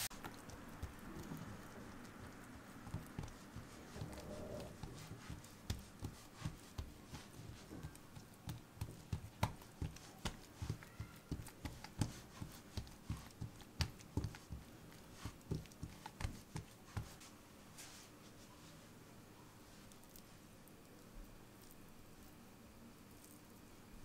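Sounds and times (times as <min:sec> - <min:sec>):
hands patting dough on wooden board: 0:00.0 - 0:18.1.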